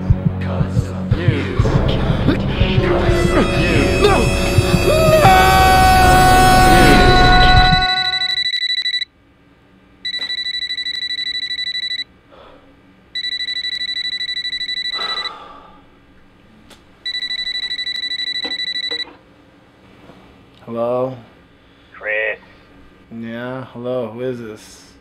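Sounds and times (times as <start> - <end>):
two-tone electronic alarm beeping: 3.2 - 9.1, 10.1 - 12.1, 13.2 - 15.4, 17.1 - 19.2.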